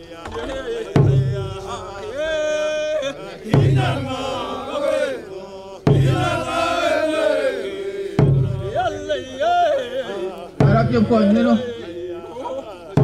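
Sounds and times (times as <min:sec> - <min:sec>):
group of voices chanting: 0:00.0 - 0:13.0
deep drum strikes: 0:00.3 - 0:02.2, 0:03.5 - 0:04.4, 0:05.9 - 0:07.0, 0:08.1 - 0:09.2, 0:10.6 - 0:11.8.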